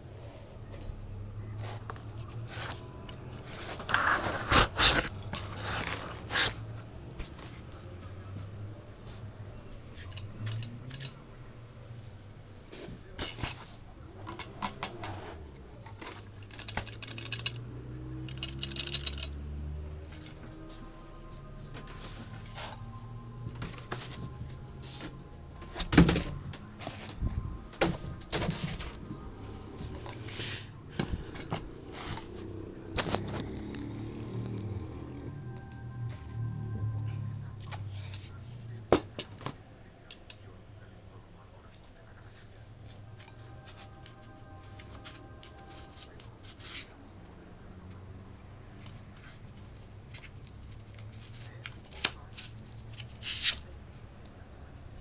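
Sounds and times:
low steady hum: 0:00.0 - 0:55.0
foam blocks rustling and scraping: 0:01.6 - 0:07.7, 0:29.8 - 0:33.4.

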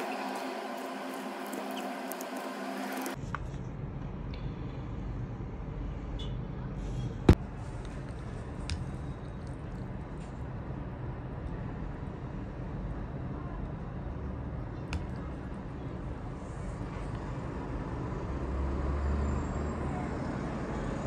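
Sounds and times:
road traffic rumble: 0:05.4 - 0:21.0.

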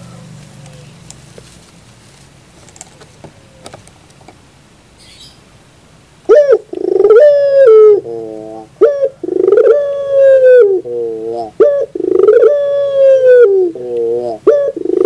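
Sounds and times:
dove cooing: 0:03.0 - 0:03.8, 0:06.3 - 0:15.0.

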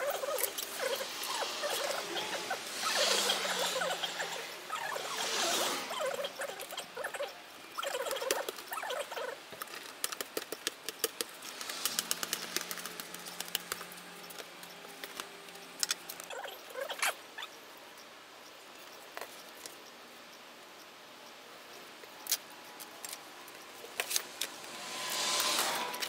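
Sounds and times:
blades cutting plastic sheet: 0:09.7 - 0:15.9.

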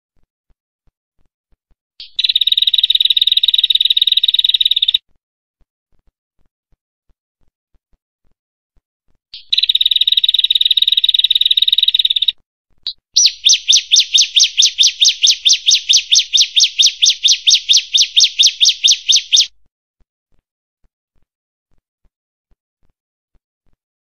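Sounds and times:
bird calling loudly: 0:02.0 - 0:05.0, 0:12.9 - 0:19.5.

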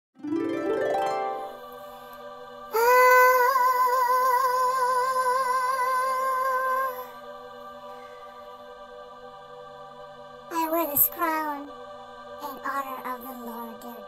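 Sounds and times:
soft sustained chord: 0:00.2 - 0:14.0
person singing a high note: 0:02.7 - 0:07.2.

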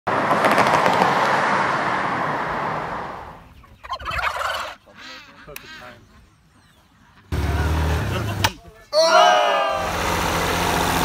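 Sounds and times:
flock of poultry calling: 0:03.4 - 0:07.4.

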